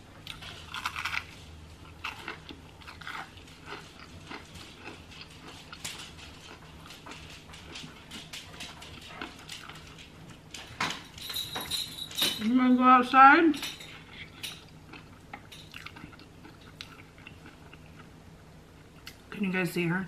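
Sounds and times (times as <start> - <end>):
crunchy onion ring chewing: 0.2 - 10.0, 14.1 - 18.2
dog: 7.6 - 10.0.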